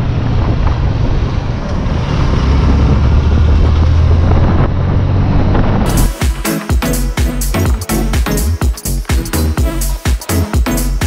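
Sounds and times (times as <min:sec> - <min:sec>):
wind rushing over microphone: 0:00.0 - 0:05.9
motorcycle engine drone: 0:00.0 - 0:06.3.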